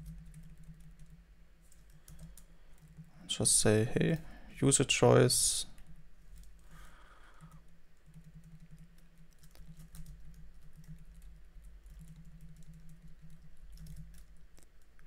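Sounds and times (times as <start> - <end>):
computer keyboard typing: 0.0 - 3.1, 5.8 - 15.0.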